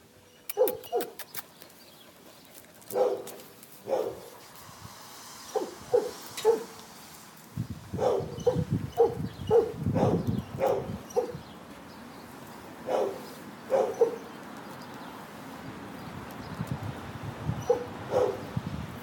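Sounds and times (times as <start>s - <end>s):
dog barking: 0.5s - 1.2s, 2.9s - 4.3s, 5.5s - 6.8s, 8.0s - 11.4s, 12.8s - 14.3s, 17.6s - 18.5s.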